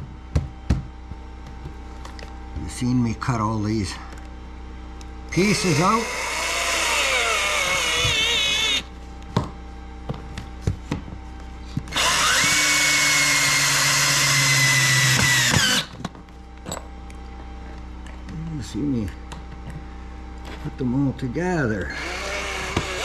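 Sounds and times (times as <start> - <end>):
cordless drill driving screws: 5.7 - 8.8, 11.9 - 15.9, 21.9 - 23.0.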